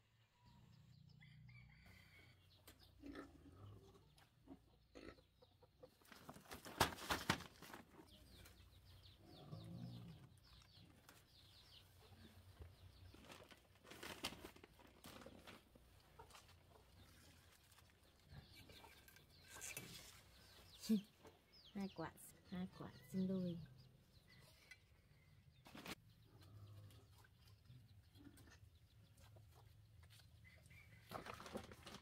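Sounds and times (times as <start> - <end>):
chickens clucking: 2.6 - 6.6.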